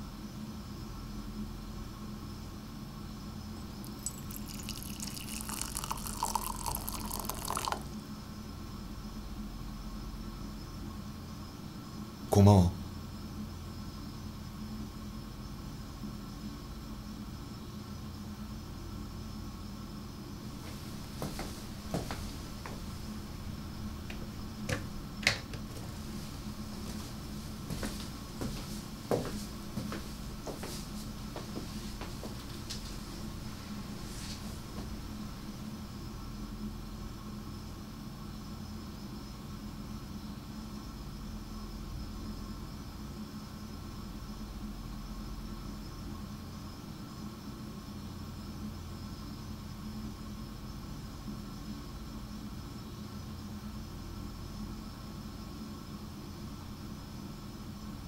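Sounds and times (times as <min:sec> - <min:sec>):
room tone hum: 0:00.0 - 0:58.0
water pouring into a ceramic mug: 0:03.6 - 0:08.0.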